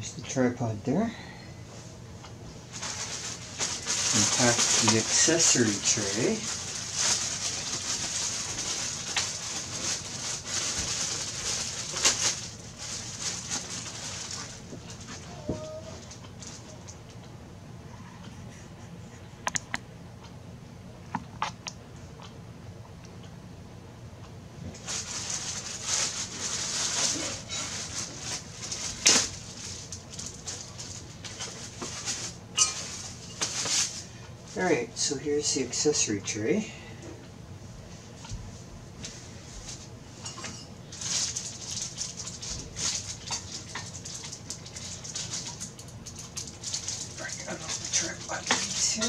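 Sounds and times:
plastic bag rustling and crinkling: 2.6 - 16.8, 24.7 - 35.1, 39.0 - 49.0.

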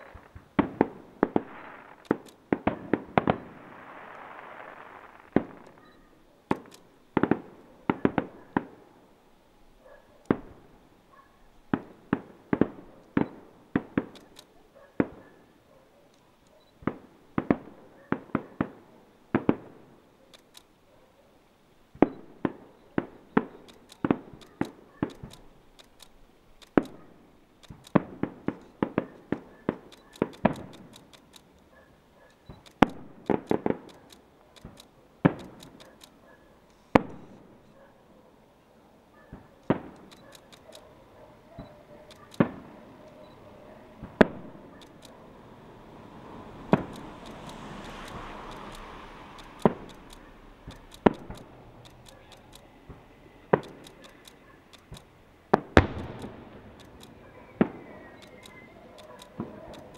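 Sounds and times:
firework hiss: 0.0 - 5.8
firework shells bursting: 0.0 - 8.9, 11.6 - 15.2, 22.0 - 31.7, 32.4 - 37.8, 39.4 - 59.9.

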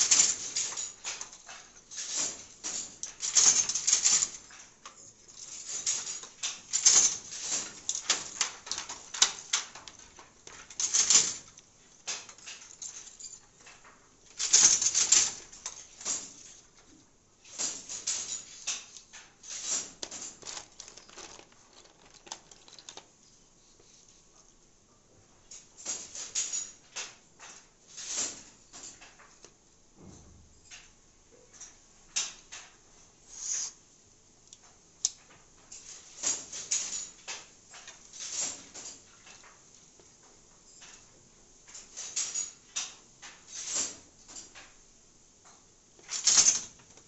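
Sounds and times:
wooden handloom clattering: 0.0 - 23.2, 46.0 - 47.0.

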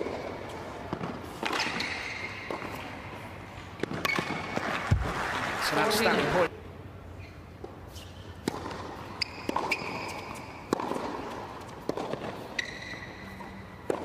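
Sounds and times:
racket hitting tennis ball: 0.0 - 5.2, 7.6 - 14.0
tennis ball bouncing: 0.0 - 5.2, 7.6 - 14.0
shoe squeaks on court: 1.5 - 2.8, 9.1 - 10.7, 12.3 - 13.8.

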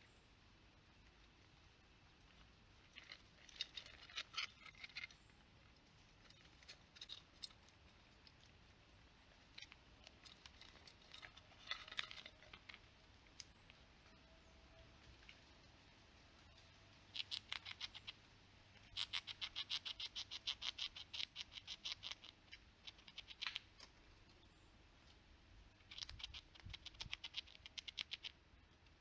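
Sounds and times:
squirrel scrabbling at feeder: 2.3 - 8.6, 9.4 - 13.8, 25.8 - 28.4.

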